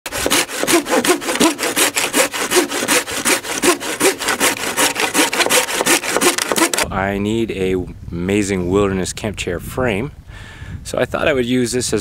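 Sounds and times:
hand saw cutting wood: 0:00.1 - 0:06.8
saw blade squealing: 0:00.2 - 0:06.8.

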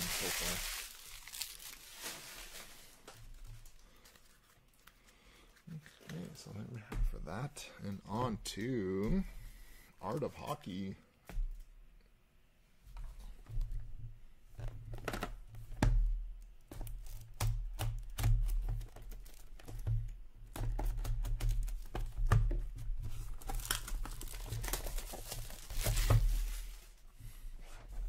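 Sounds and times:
plastic wrap tearing and crinkling: 0:00.0 - 0:06.5, 0:23.2 - 0:27.0.

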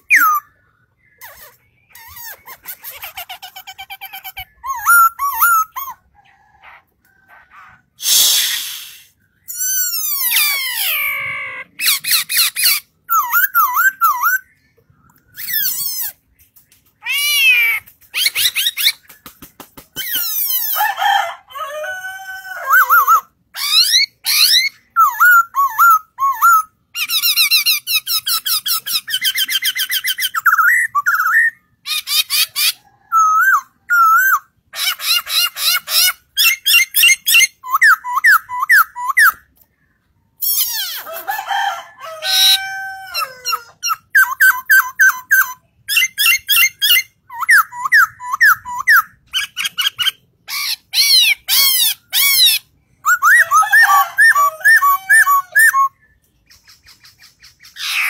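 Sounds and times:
laughingthrush singing: 0:42.4 - 0:56.0.

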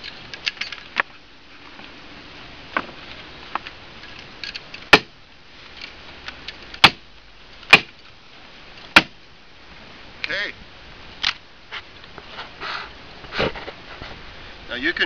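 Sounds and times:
staple hammer smacks: 0:07.7 - 0:08.0.

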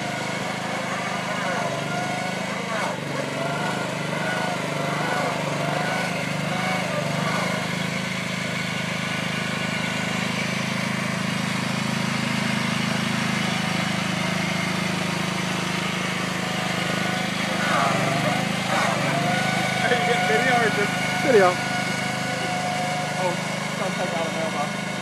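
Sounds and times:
lawn tractor engine running: 0:00.0 - 0:25.0
voices: 0:00.2 - 0:07.8, 0:16.1 - 0:24.8.

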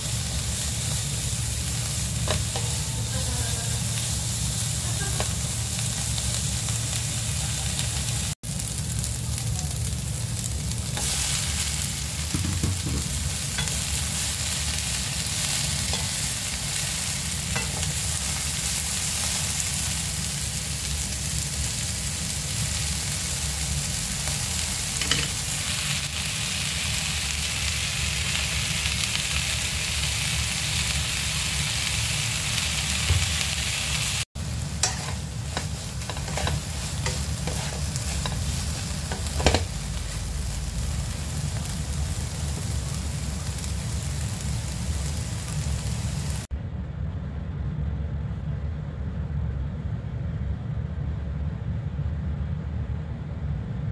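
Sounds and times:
vegetables sizzling in oil: 0:00.0 - 0:46.5
spatula scraping and tapping pan: 0:25.0 - 0:25.4, 0:34.8 - 0:39.7.

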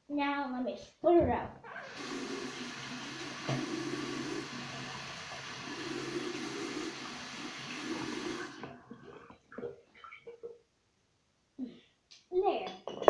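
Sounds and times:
tap water splashing into sink: 0:01.7 - 0:10.4.

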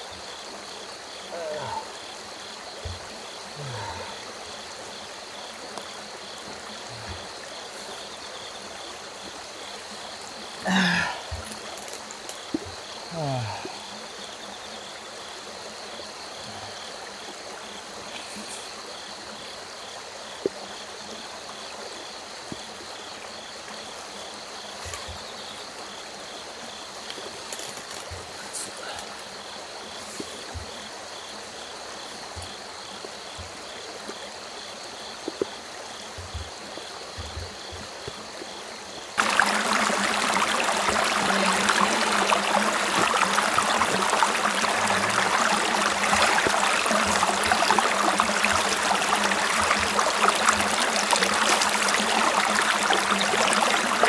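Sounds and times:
faint water noise: 0:00.0 - 0:54.0
river rushing over stones: 0:39.2 - 0:54.0.

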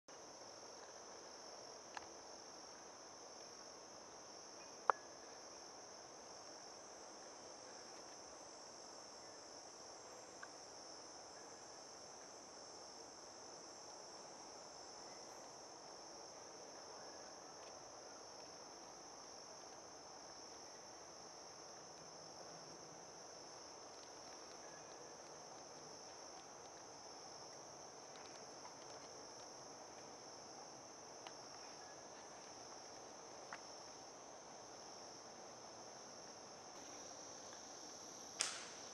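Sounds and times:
insects droning: 0:00.1 - 0:38.9
sharp clicks: 0:38.4 - 0:38.8.

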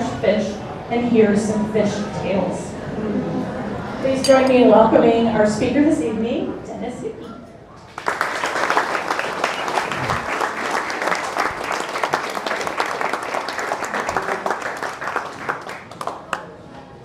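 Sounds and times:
people applauding: 0:07.9 - 0:16.6.

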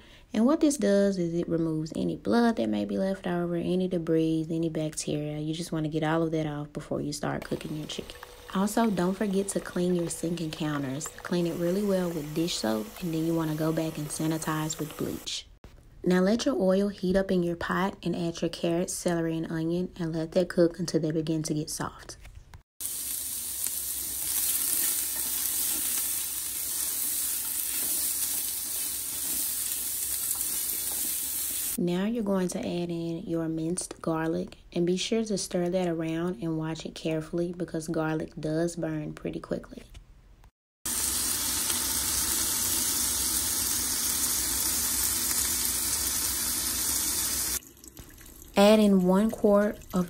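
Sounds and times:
vegetables sizzling in hot oil: 0:07.4 - 0:15.3, 0:22.8 - 0:31.8, 0:40.9 - 0:47.6.

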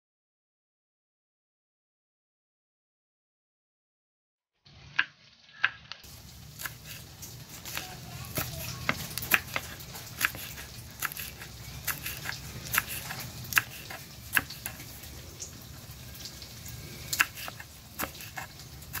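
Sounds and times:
knife tapping cutting board: 0:07.6 - 0:14.9, 0:17.1 - 0:19.0.

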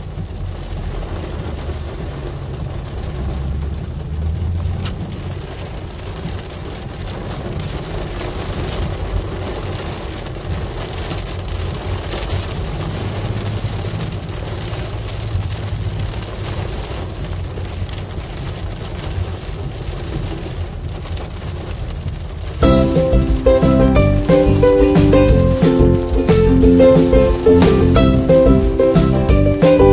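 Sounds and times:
car engine and tyres rumbling: 0:00.0 - 0:22.9
raindrop ticks: 0:00.0 - 0:26.4
heavy rain on car roof: 0:00.0 - 0:29.9.

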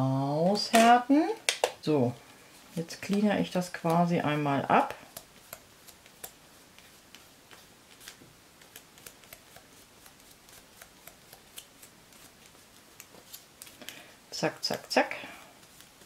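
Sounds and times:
faint irregular clicks and taps: 0:05.0 - 0:11.7.

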